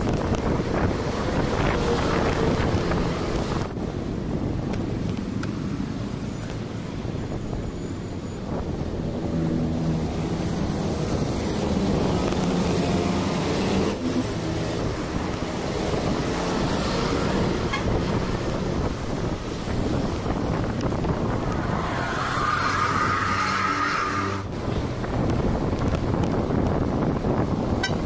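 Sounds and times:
road traffic noise: 0:00.0 - 0:28.0
wind buffeting microphone: 0:00.0 - 0:28.0
vehicle engine passing: 0:08.5 - 0:24.8.

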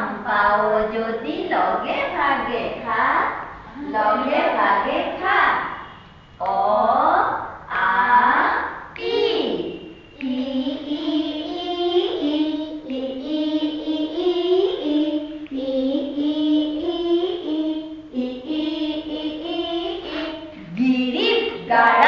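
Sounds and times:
young child singing: 0:07.7 - 0:22.0.

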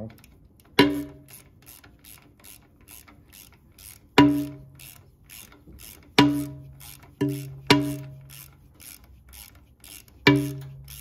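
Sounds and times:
ratchet wrench clicking: 0:00.0 - 0:11.0.

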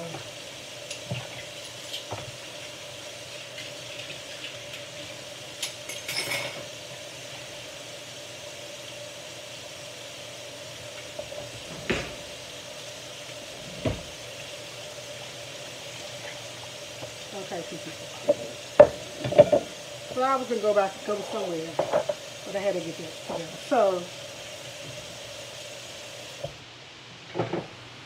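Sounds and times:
dishes and utensils clinking: 0:05.6 - 0:06.8, 0:18.2 - 0:19.8.

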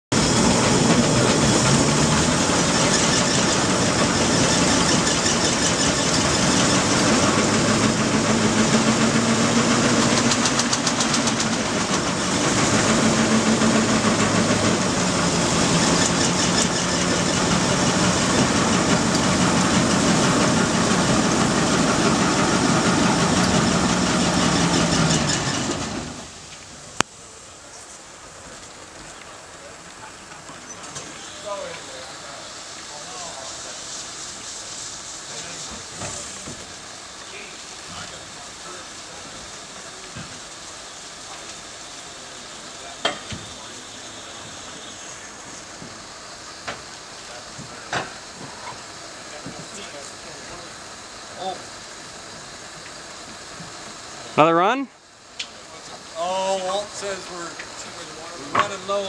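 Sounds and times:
steam engine chuffing: 0:00.1 - 0:26.5, 0:30.4 - 0:54.8, 0:55.6 - 0:59.0
mechanical rumble: 0:00.1 - 0:27.0
steam hiss: 0:00.1 - 0:59.0.

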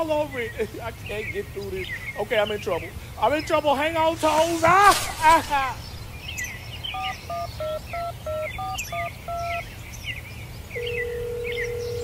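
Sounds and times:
birds chirping: 0:00.0 - 0:11.0
phone keypad beeps: 0:07.0 - 0:09.6.

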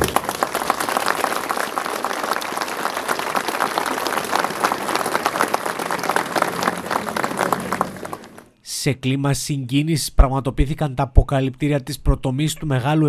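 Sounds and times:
crowd applauding: 0:00.0 - 0:08.6.

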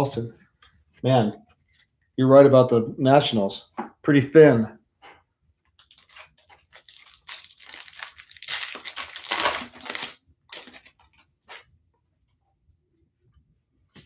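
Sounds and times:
foil wrapper tearing and crinkling: 0:05.8 - 0:11.6.

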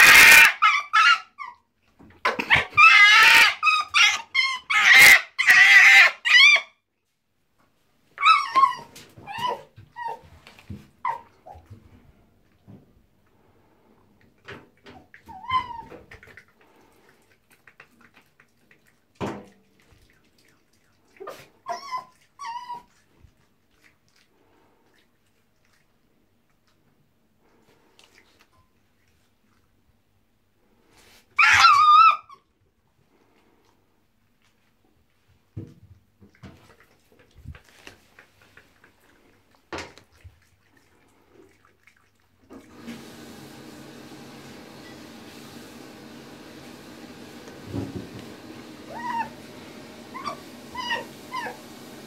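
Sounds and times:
fox whining squeals: 0:00.0 - 0:01.6, 0:02.3 - 0:06.8, 0:08.2 - 0:10.2, 0:15.3 - 0:16.0, 0:21.2 - 0:23.0, 0:31.4 - 0:32.5, 0:48.9 - 0:49.4, 0:50.1 - 0:51.6.

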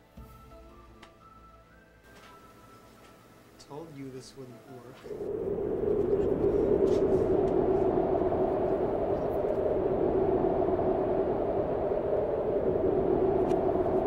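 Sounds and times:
low drone: 0:04.9 - 0:14.0
wind rushing: 0:04.9 - 0:14.0.

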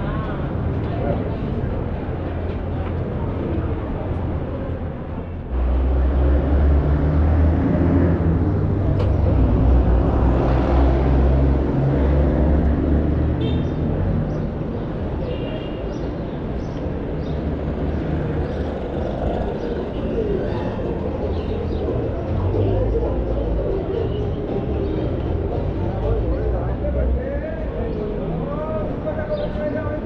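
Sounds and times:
vehicle engine rumbling: 0:00.0 - 0:15.5.

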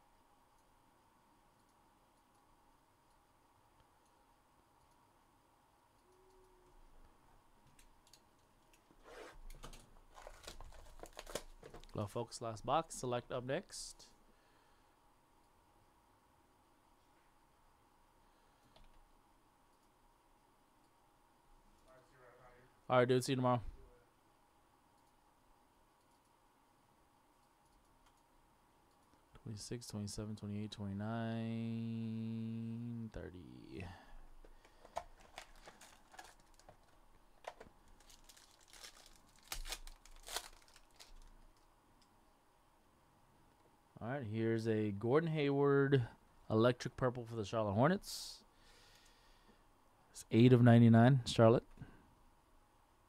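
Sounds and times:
low steady hiss: 0:00.0 - 0:53.0
foil wrapper tearing and crinkling: 0:35.2 - 0:36.9, 0:37.9 - 0:41.3.

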